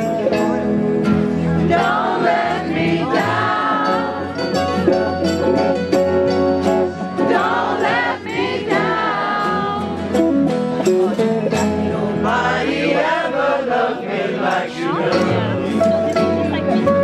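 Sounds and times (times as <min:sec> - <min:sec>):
strummed acoustic guitar: 0:00.0 - 0:17.0
crowd singing together: 0:01.2 - 0:17.0.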